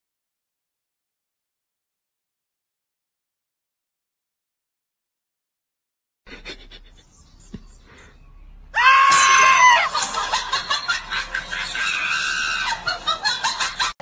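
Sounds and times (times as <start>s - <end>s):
high-pitched scream: 8.8s - 10.0s, 11.8s - 12.8s
bursts of laughter: 9.3s - 14.0s.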